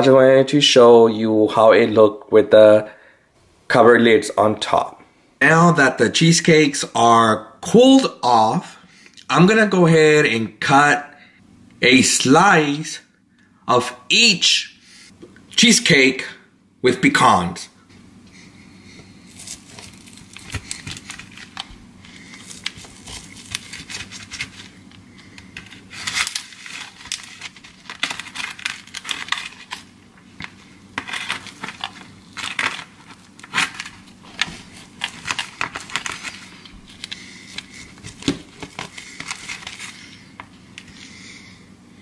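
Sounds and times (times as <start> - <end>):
low steady hum: 0.0 - 42.0
knife scraping foil pan: 19.3 - 40.2.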